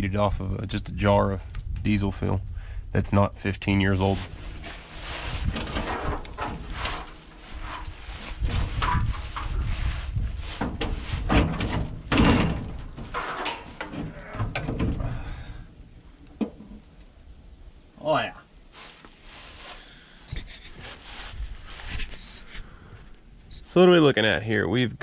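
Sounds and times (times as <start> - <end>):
metal panel clanking and scraping: 4.0 - 15.2
hinges creaking: 4.0 - 15.4.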